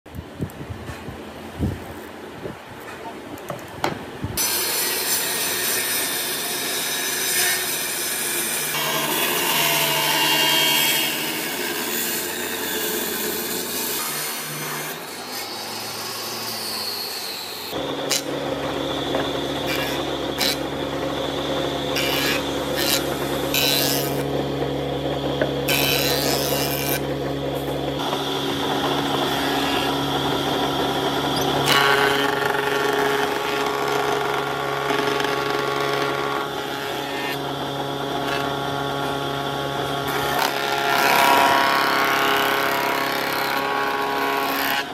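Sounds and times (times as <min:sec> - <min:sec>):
table saw cutting wood: 0:04.4 - 0:44.9
planer humming: 0:17.7 - 0:44.9.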